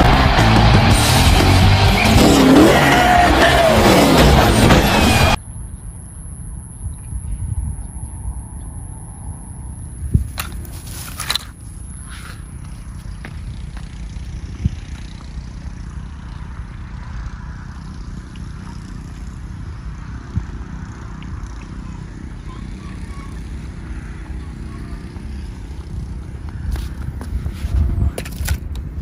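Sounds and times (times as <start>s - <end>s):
distant traffic: 0.0s - 29.0s
wind on microphone: 6.6s - 29.0s.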